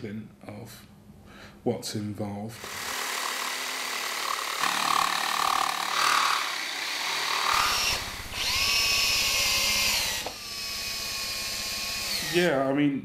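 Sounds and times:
drill-driver whining: 2.6s - 12.5s
jigsaw cutting plywood: 2.6s - 12.5s.

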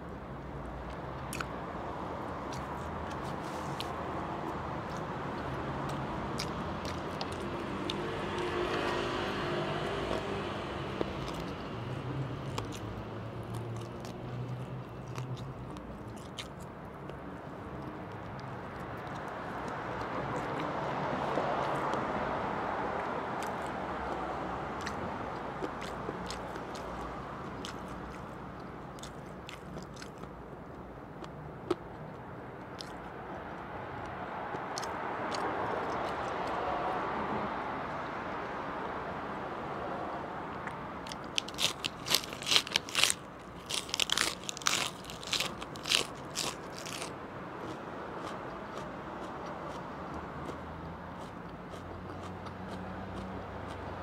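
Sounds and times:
steady background noise: 0.0s - 54.0s
quiet chewing: 0.9s - 1.6s, 2.5s - 9.0s, 11.0s - 11.6s, 12.4s - 20.7s, 24.8s - 36.6s, 40.5s - 53.9s
crisp lettuce crunches: 41.1s - 47.1s.

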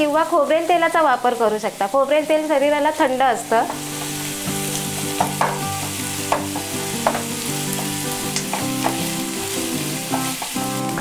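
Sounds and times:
onions sizzling in oil: 0.0s - 11.0s
spatula scraping and tapping pan: 3.6s - 9.2s, 9.9s - 11.0s.

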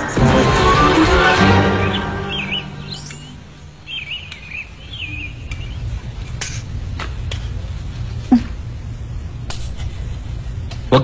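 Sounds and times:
birds chirping: 0.0s - 6.8s
low room hum: 2.9s - 11.0s.

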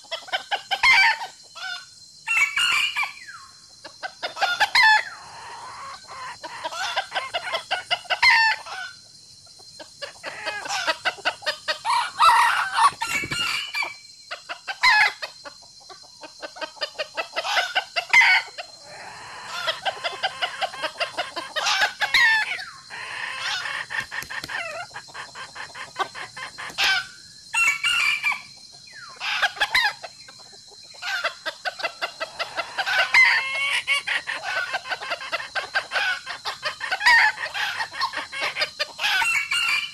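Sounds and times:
chickens clucking: 0.0s - 39.9s
rooster crowing: 11.7s - 14.0s, 17.4s - 23.9s, 26.8s - 28.5s, 32.2s - 33.8s, 36.9s - 39.9s.

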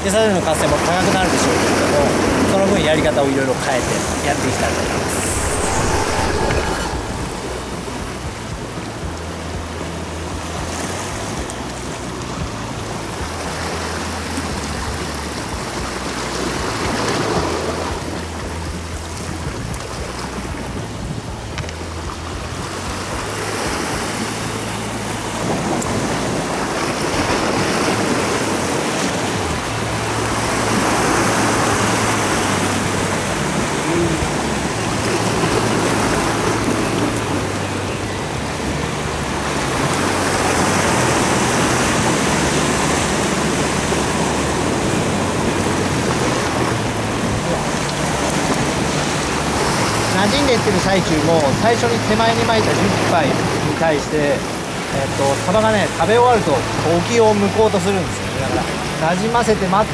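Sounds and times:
waves breaking against rocks: 0.0s - 6.1s, 22.7s - 37.8s, 38.5s - 59.9s.

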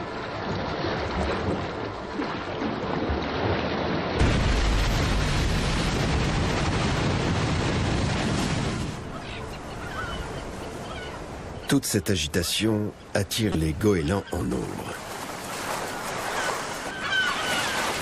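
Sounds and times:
sea water splashing: 0.0s - 18.0s
wind: 0.0s - 18.0s
faint gull calls: 9.0s - 11.8s, 14.0s - 18.0s.

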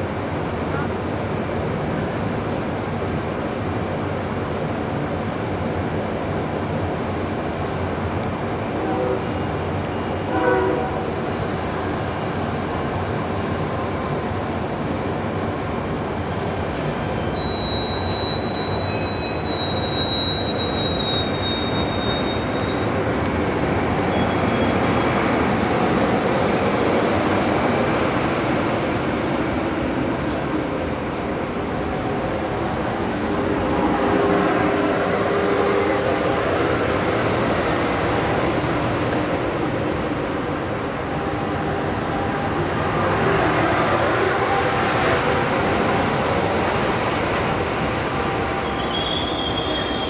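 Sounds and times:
train wheels rumbling on rail: 0.0s - 50.0s
high wheel squeal: 16.3s - 23.0s, 48.0s - 50.0s.

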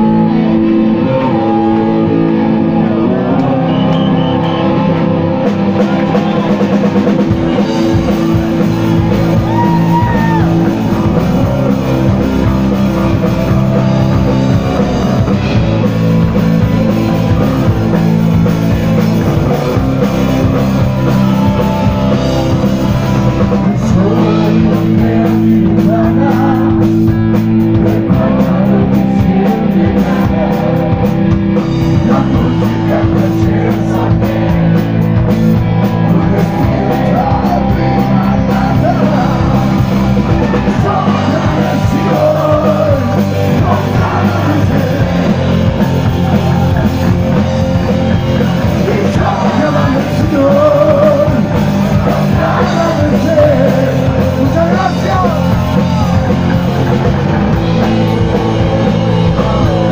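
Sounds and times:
drum kit: 0.0s - 59.9s
electric guitar: 0.0s - 59.9s
man singing: 5.6s - 59.9s.

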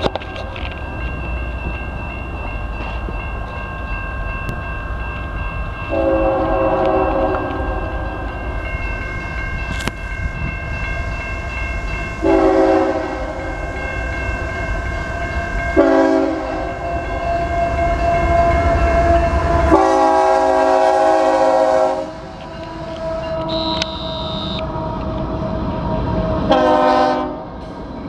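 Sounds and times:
train air horn blasts: 5.9s - 8.2s, 12.2s - 13.6s, 15.2s - 24.7s, 26.5s - 27.5s.

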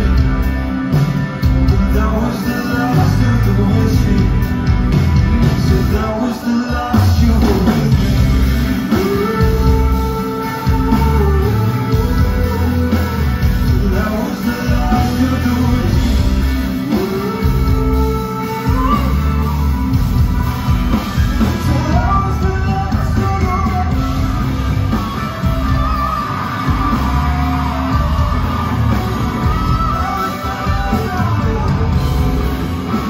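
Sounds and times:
bending lead guitar line: 0.0s - 33.0s
live rock band playing: 0.0s - 33.0s.

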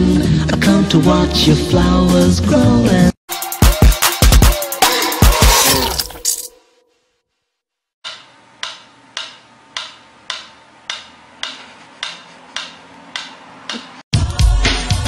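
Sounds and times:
music: 0.0s - 6.9s, 13.7s - 15.0s
mechanical metronome ticking: 8.1s - 14.0s.

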